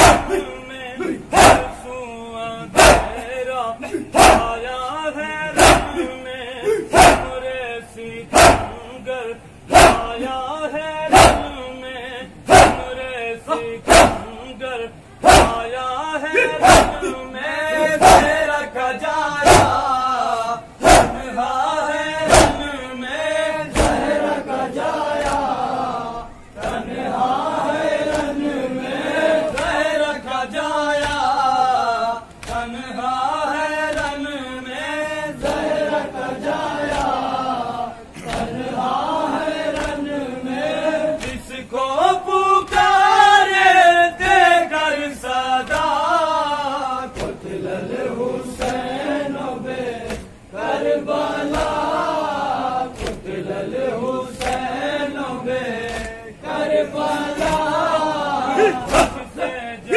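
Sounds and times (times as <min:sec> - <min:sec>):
men chanting in chorus: 0:00.0 - 0:59.9
hand slaps on chest: 0:02.8 - 0:03.2, 0:04.2 - 0:04.6, 0:08.4 - 0:08.8, 0:20.8 - 0:21.2, 0:22.3 - 0:22.7, 0:23.7 - 0:24.1, 0:25.2 - 0:25.5, 0:28.1 - 0:28.4, 0:31.0 - 0:31.3, 0:32.4 - 0:32.7, 0:36.9 - 0:37.2, 0:39.7 - 0:40.1, 0:41.2 - 0:41.5, 0:45.6 - 0:46.0, 0:47.2 - 0:47.4, 0:48.6 - 0:48.8, 0:50.0 - 0:50.3, 0:51.4 - 0:51.8, 0:52.9 - 0:53.2, 0:54.4 - 0:54.7, 0:55.8 - 0:56.2, 0:57.4 - 0:57.7.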